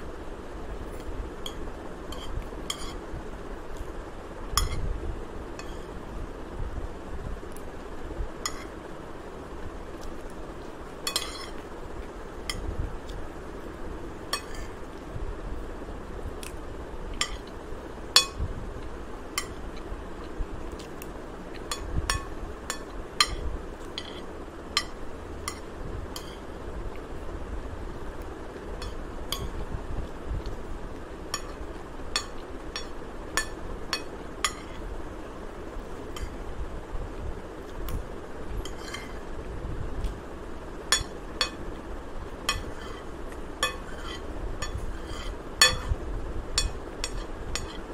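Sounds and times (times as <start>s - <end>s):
low background noise: 0.0s - 47.9s
spoon clinking on ceramic plate: 43.6s - 46.0s.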